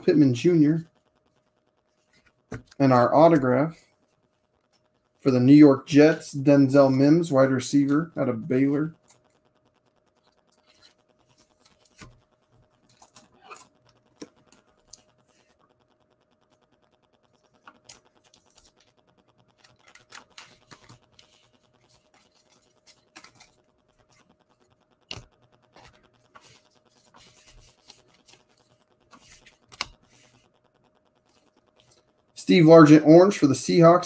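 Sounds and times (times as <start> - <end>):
cards scratching and sliding: 5.2 - 15.7, 17.4 - 33.0.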